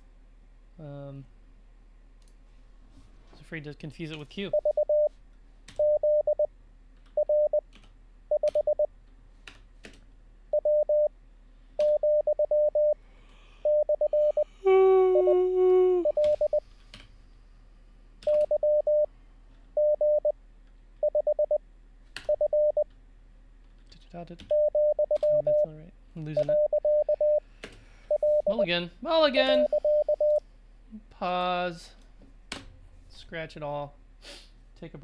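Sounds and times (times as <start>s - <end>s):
morse code tone: 4.5s - 5.1s, 5.8s - 6.5s, 7.2s - 7.6s, 8.3s - 8.9s, 10.5s - 11.1s, 11.8s - 13.0s, 13.6s - 16.6s, 19.8s - 20.3s, 21.0s - 21.6s, 22.3s - 22.8s, 24.5s - 25.7s, 26.4s - 27.4s, 28.1s - 28.7s, 29.4s - 30.4s
hummed tone: 13.6s - 16.6s.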